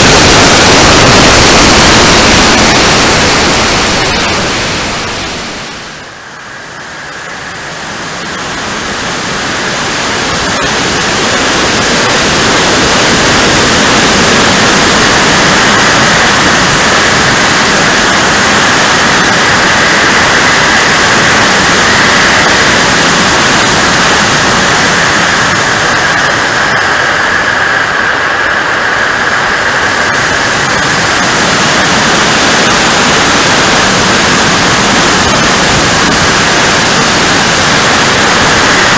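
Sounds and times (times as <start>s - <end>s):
jet turbine running: 0.0s - 38.9s
rush of air: 0.0s - 38.9s.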